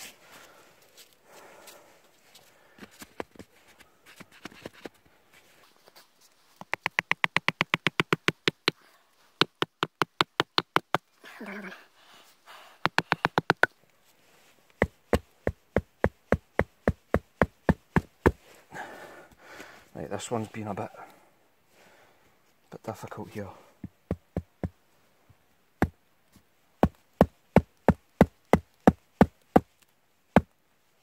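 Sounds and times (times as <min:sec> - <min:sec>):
wooden peg hammered into log: 0:06.6 - 0:08.8, 0:09.4 - 0:11.0, 0:12.8 - 0:13.7, 0:14.8 - 0:18.4, 0:26.8 - 0:29.4.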